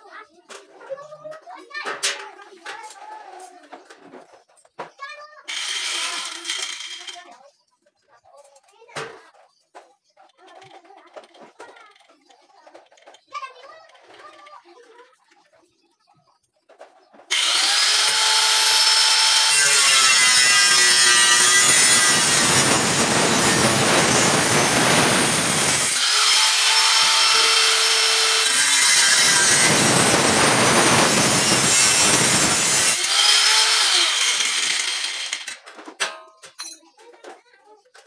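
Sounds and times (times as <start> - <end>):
angle grinder cutting steel: 5.5 - 7.2, 17.3 - 35.6
grinder disc whining: 5.5 - 7.2, 17.2 - 35.8.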